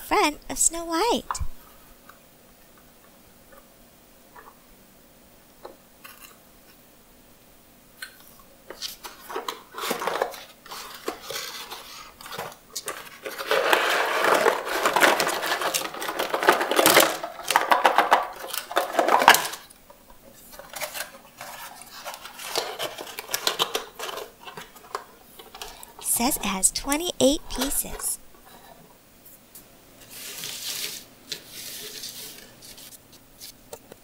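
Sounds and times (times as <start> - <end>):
puzzle pieces rattling and clattering: 13.0 - 19.6.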